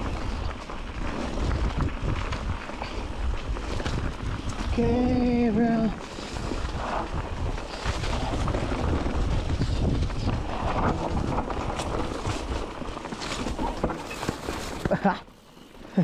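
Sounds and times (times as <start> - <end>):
wind buffeting microphone: 0.0 - 14.9.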